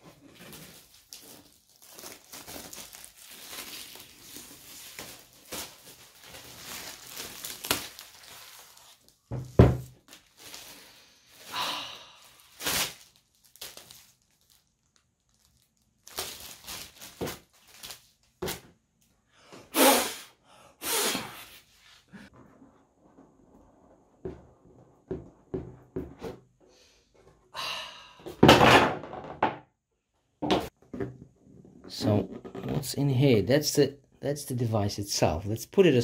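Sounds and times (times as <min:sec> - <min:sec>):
rustling: 0:00.0 - 0:09.2
plastic wrap crinkling and tearing: 0:00.2 - 0:09.3, 0:09.9 - 0:18.6.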